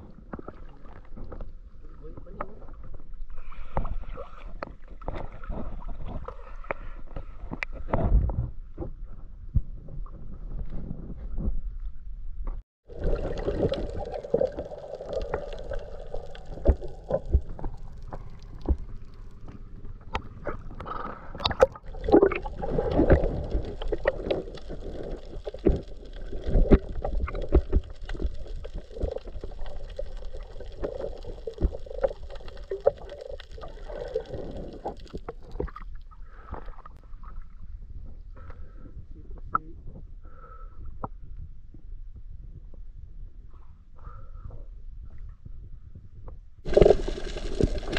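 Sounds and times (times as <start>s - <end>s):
water sloshing and gurgling: 0.0s - 8.4s, 12.9s - 38.1s, 46.7s - 47.9s.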